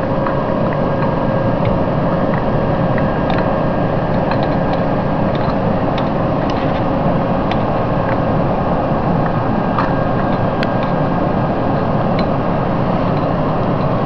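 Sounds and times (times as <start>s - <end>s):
mechanical hum: 0.0s - 14.0s
small metal clicks: 4.1s - 6.9s.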